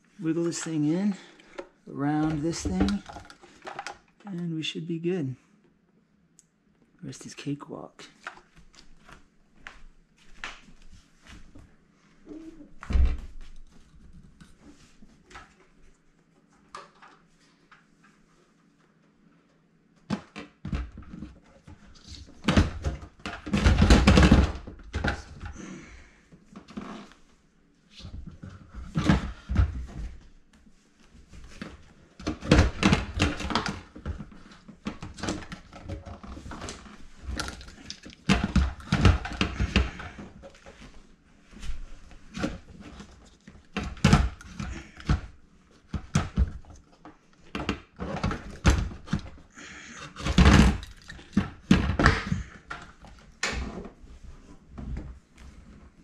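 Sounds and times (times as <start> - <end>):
plastic knocks and rattles: 20.1 - 25.4.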